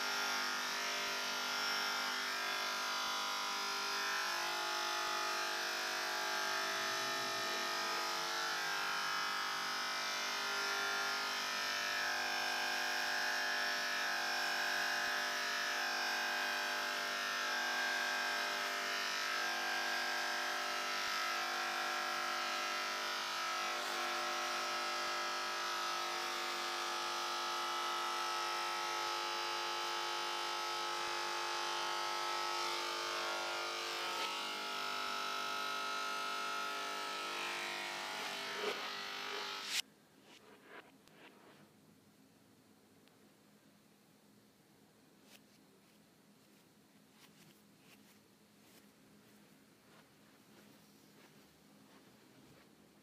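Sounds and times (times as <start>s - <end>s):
electric hair clippers buzzing: 0.0s - 39.8s.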